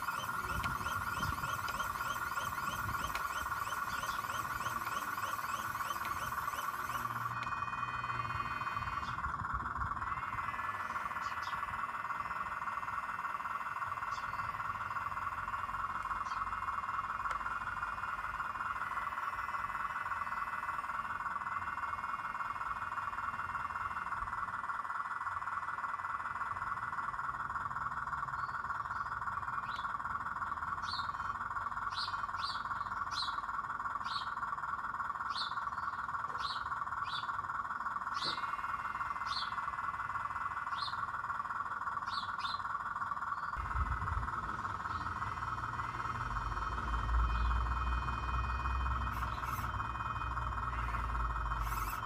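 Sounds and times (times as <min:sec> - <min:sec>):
high bird chirps: 0:00.0 - 0:09.2, 0:10.1 - 0:11.7, 0:35.3 - 0:37.4, 0:38.1 - 0:39.6, 0:40.6 - 0:41.1, 0:42.0 - 0:42.7, 0:49.0 - 0:49.8
frogs trilling: 0:00.0 - 0:52.0
low rumble: 0:43.2 - 0:52.0.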